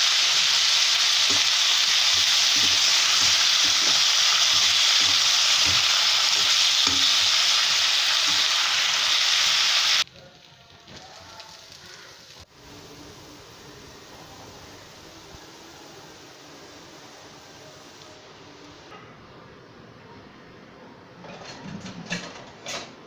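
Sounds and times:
potatoes sizzling in hot oil: 0.0 - 18.8
spatula knocking on pan: 1.3 - 7.4.

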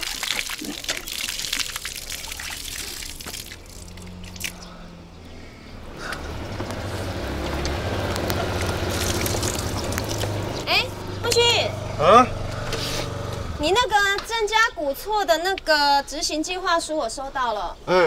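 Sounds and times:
water pouring into bucket: 0.0 - 4.5, 6.3 - 10.7
motor scooter engine rumble: 3.6 - 14.3.

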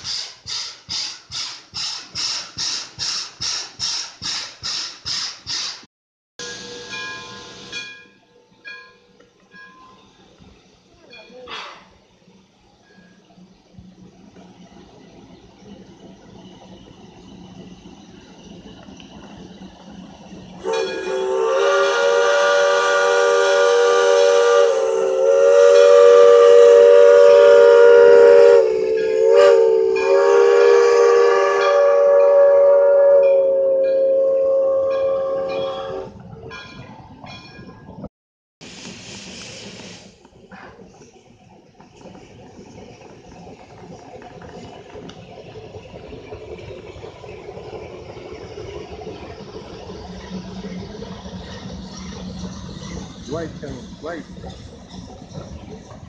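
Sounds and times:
steam hissing: 0.0 - 8.0, 9.8 - 36.1, 38.6 - 56.0
steam locomotive gears clattering: 0.0 - 56.0
steam locomotive whistle blast: 6.4 - 8.0, 20.6 - 36.2.

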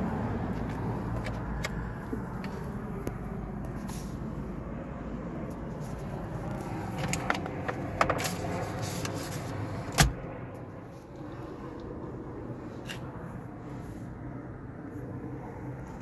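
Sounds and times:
steady low hum: 0.0 - 16.0
glove box clicks and rattles: 6.9 - 9.2.

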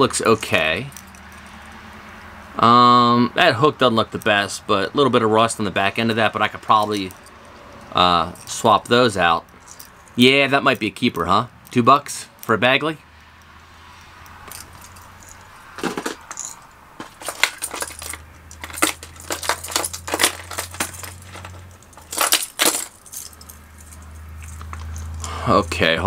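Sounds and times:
plastic lures and hooks clattering: 14.4 - 25.7.

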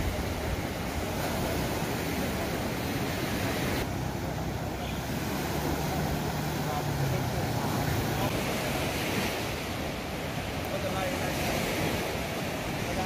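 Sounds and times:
wind noise on microphone: 0.0 - 3.9
sea surf washing onto beach: 0.0 - 13.0.

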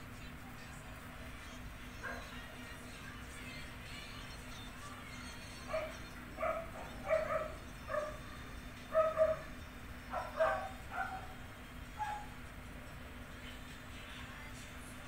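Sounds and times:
dog barking: 2.0 - 2.4, 5.7 - 8.3, 8.9 - 9.5, 10.1 - 11.4, 12.0 - 12.4.

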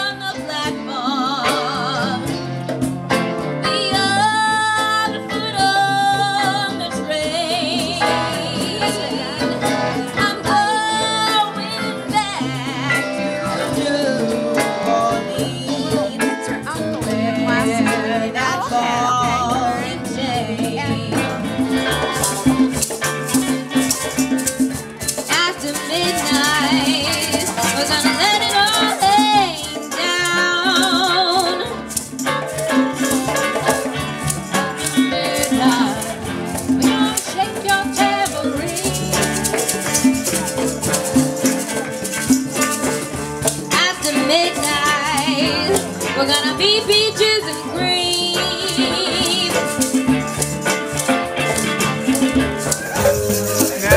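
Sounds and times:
person singing with vibrato: 0.0 - 2.5, 3.6 - 23.0, 25.1 - 32.1, 34.8 - 40.0, 43.7 - 50.0
strummed acoustic guitars: 0.0 - 53.9
hand drums: 0.1 - 53.9
shaker: 3.7 - 53.9.

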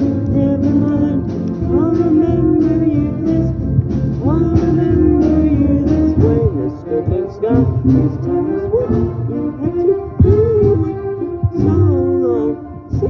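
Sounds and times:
person singing: 0.0 - 13.0.

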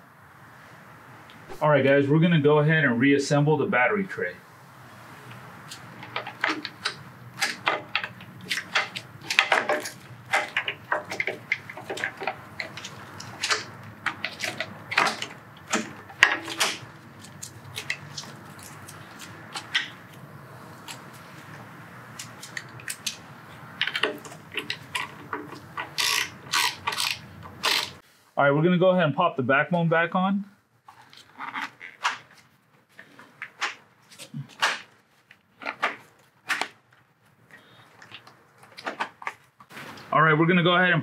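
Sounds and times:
plastic parts clicking and rattling: 5.6 - 20.2, 20.8 - 28.0
socket ratchet clicking: 23.8 - 28.0.

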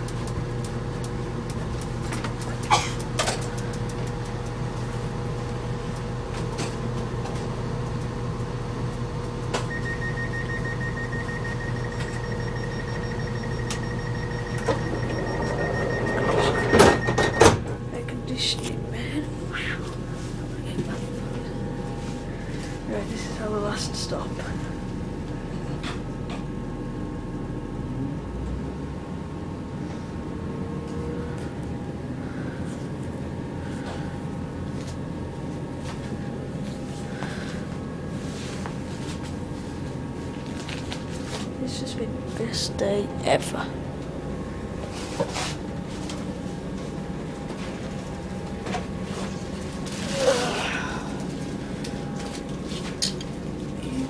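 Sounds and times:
train rumbling: 10.1 - 24.6.

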